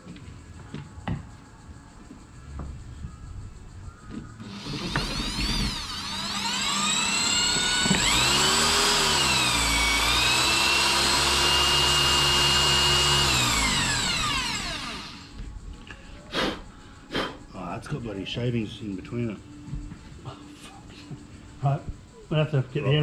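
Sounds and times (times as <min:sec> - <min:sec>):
cordless drill whining: 0:04.4 - 0:15.4.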